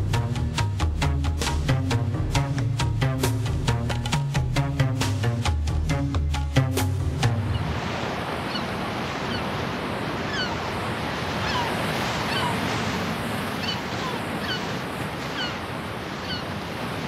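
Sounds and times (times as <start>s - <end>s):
waves breaking on a beach: 6.9s - 17.0s.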